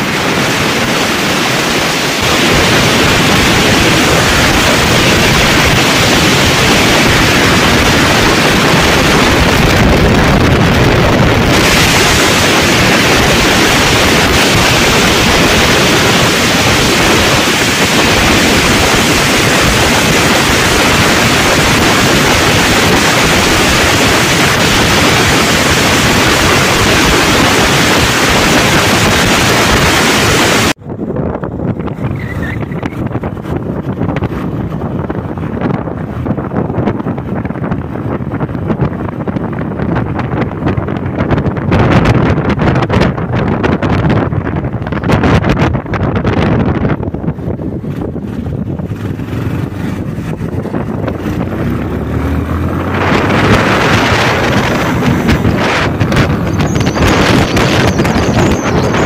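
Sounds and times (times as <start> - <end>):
heavy wind rush on microphone: 0.0 - 59.0
road noise: 0.0 - 59.0.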